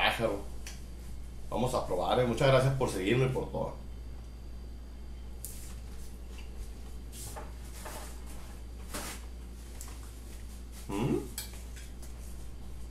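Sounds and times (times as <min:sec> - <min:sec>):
steady low hum: 0:00.0 - 0:12.9
man humming mmm: 0:10.8 - 0:11.4.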